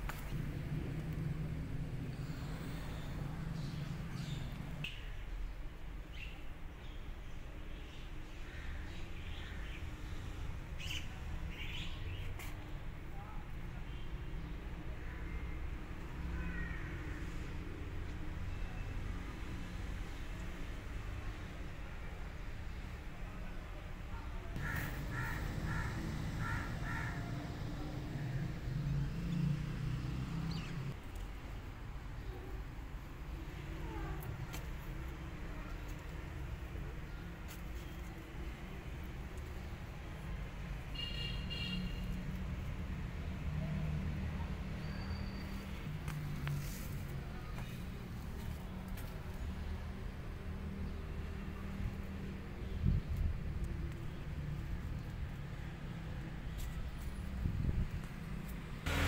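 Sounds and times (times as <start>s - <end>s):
steady low rumble: 0.0s - 4.8s
crow cawing: 24.6s - 27.6s
faint bird chirps: 44.8s - 45.8s.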